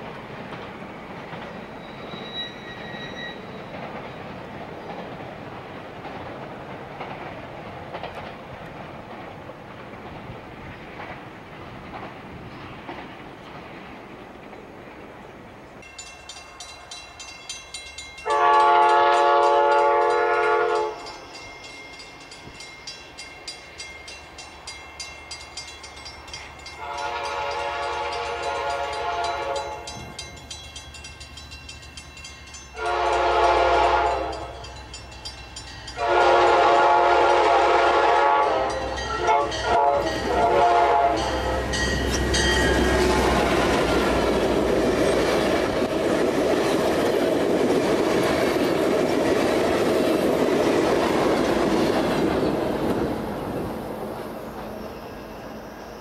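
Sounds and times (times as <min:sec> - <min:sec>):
wheels clicking over rail joints: 0:00.0 - 0:02.4, 0:03.6 - 0:15.2, 0:41.2 - 0:54.9
train passing with rushing noise: 0:00.0 - 0:56.0
train air horn blasts: 0:18.2 - 0:21.1, 0:26.8 - 0:30.0, 0:32.8 - 0:34.7, 0:36.0 - 0:42.0.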